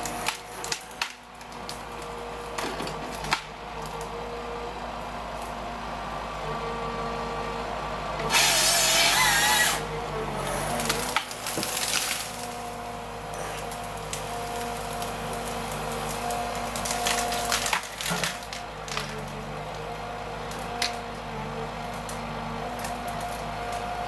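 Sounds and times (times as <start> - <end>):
branches snapping: 0.0 - 4.1, 10.6 - 19.4
wood cracking and snapping: 0.0 - 4.1, 10.6 - 19.8, 20.5 - 21.2
diesel engine running: 0.0 - 24.0
tree crashing to the ground: 10.6 - 12.8, 13.6 - 19.3.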